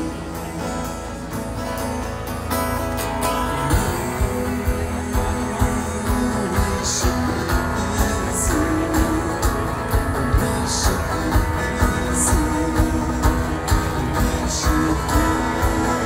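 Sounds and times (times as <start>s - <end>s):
rock band strumming guitars: 0.0s - 16.0s
steady drum beat: 3.7s - 16.0s.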